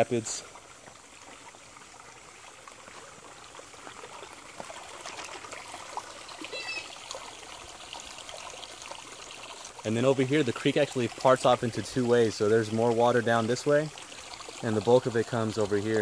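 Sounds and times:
creek babbling over rapids: 0.0 - 16.0
high chirp: 6.5 - 7.0.

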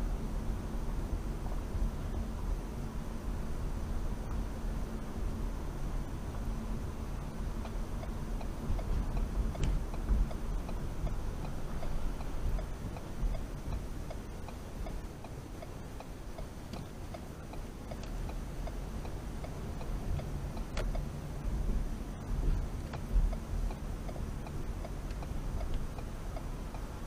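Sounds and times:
car engine and tyres rumbling: 0.0 - 27.0
turn signal ticking: 6.2 - 27.0.

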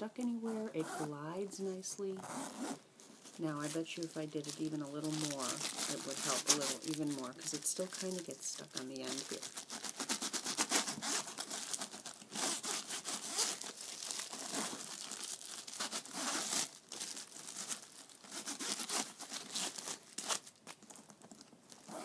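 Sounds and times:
paper crinkling: 3.0 - 22.0
wax paper rasping on zipper teeth: 4.6 - 14.8, 15.8 - 16.7, 18.2 - 19.9.

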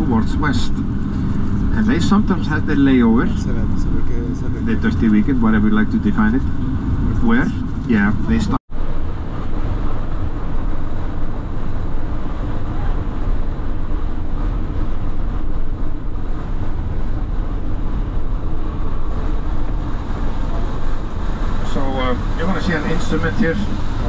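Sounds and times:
vehicle cabin road rumble: 0.0 - 24.0
road hiss: 18.4 - 24.0.

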